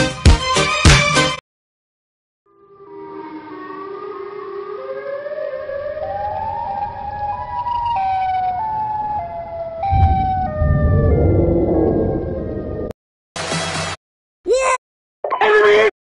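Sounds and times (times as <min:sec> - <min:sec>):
two-tone siren: 0:03.1 - 0:12.7
low rumble: 0:09.8 - 0:13.0
low thump: 0:09.9 - 0:12.9.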